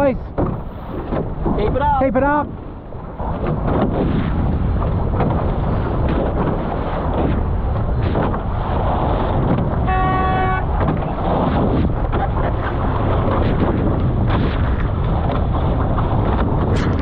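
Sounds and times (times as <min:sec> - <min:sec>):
water rushing past hulls: 0:00.0 - 0:17.0
wind buffeting microphone: 0:00.0 - 0:17.0
short horn blast: 0:09.8 - 0:10.7.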